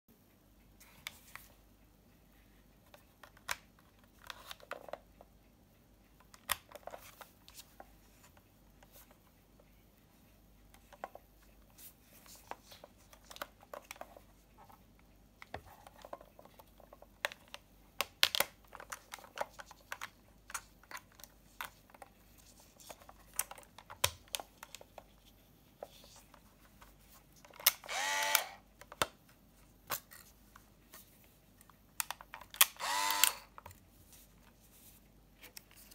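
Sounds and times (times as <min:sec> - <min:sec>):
camera mechanical whir: 0:27.7 - 0:28.6, 0:32.6 - 0:33.5.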